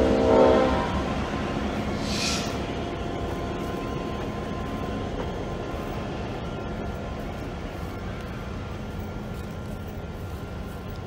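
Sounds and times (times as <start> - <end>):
diesel locomotive rumbling past: 0.0 - 11.0
short high hiss: 1.9 - 2.7.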